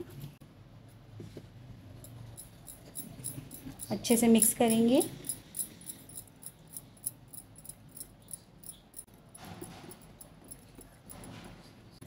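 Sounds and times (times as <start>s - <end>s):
metal spoon stirring in glass bowl: 2.1s - 11.2s.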